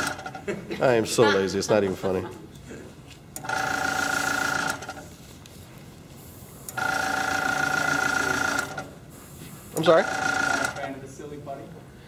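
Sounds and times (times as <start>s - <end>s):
compressor motor hum: 0.0s - 0.5s, 3.2s - 5.2s, 6.0s - 12.0s
airbrush hissing: 9.1s - 10.0s.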